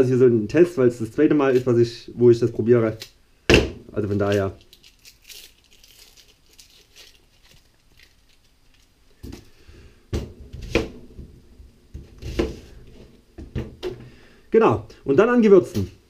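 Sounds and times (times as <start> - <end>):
onion skin crackling: 3.9 - 9.6.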